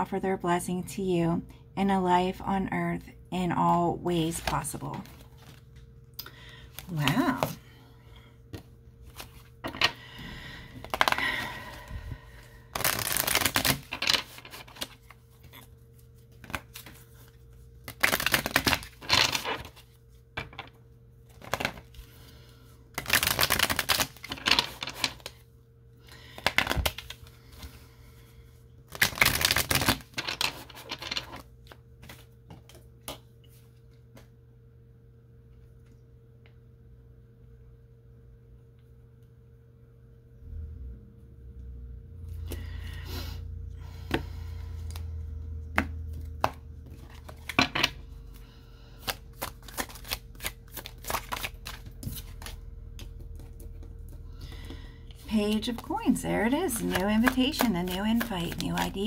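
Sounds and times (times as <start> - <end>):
cards being shuffled: 4.3 - 5.9, 8.5 - 9.9, 10.8 - 11.9, 12.7 - 20.7, 21.3 - 22.2, 22.9 - 25.4, 26.3 - 27.8, 28.9 - 34.3, 44.1 - 59.0.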